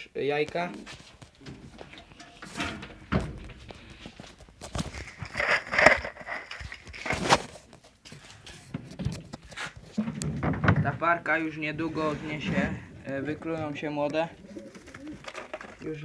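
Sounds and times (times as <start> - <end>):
wood scraping and rustling: 0.5 - 16.0
wooden boards knocking: 10.0 - 11.1.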